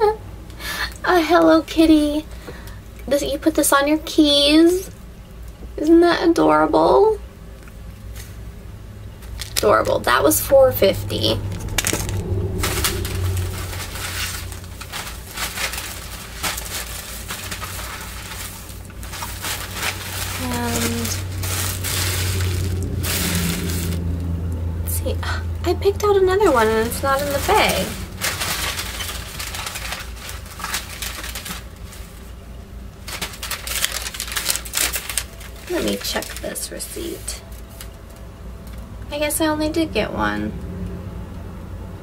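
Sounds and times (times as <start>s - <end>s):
low hum: 6.8s - 42.0s
shopping bag rustling: 9.2s - 24.1s, 26.4s - 32.4s, 33.0s - 38.1s.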